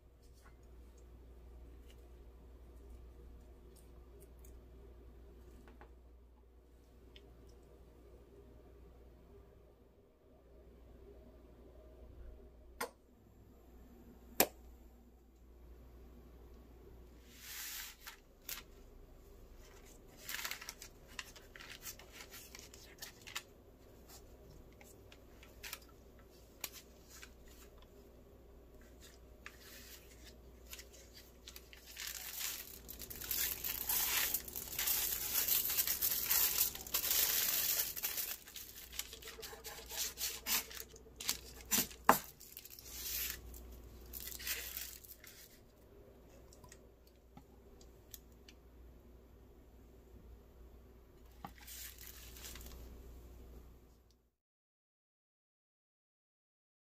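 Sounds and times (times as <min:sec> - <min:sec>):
tearing and crinkling: 0:19.6 - 0:23.5, 0:24.1 - 0:27.8, 0:28.8 - 0:45.6, 0:51.5 - 0:52.8.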